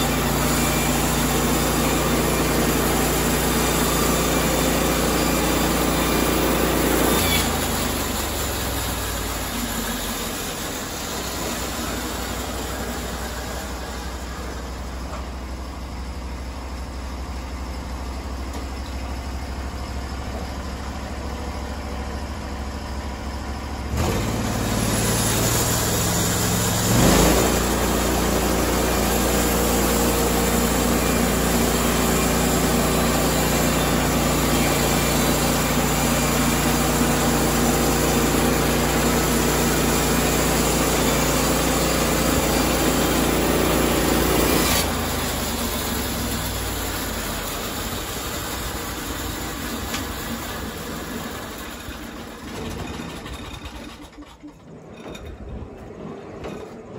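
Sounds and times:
sawmill engine running: 0:00.0 - 0:56.9
band blade cutting wood: 0:43.7 - 0:45.0.

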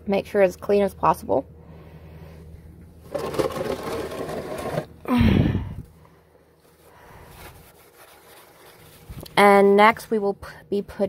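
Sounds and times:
rumbling scrape: 0:03.0 - 0:05.0.

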